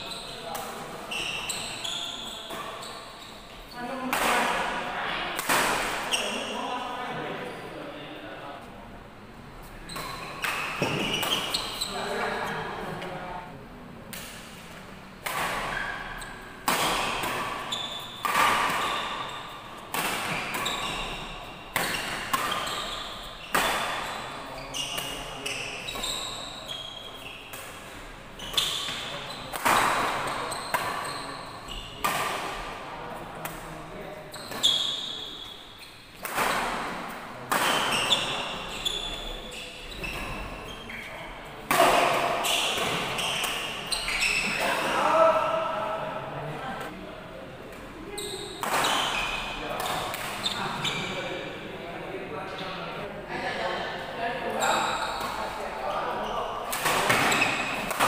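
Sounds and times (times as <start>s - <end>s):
shoes squeaking on court: 0.0s - 4.5s, 6.0s - 6.6s, 9.6s - 12.7s, 15.6s - 27.5s, 28.3s - 32.0s, 34.2s - 36.2s, 37.6s - 41.3s, 42.2s - 44.8s, 48.1s - 51.2s, 54.5s - 58.0s
rackets hitting shuttlecock: 16.6s - 21.1s, 21.7s - 22.9s, 41.7s - 44.8s, 48.6s - 50.5s, 56.7s - 58.0s.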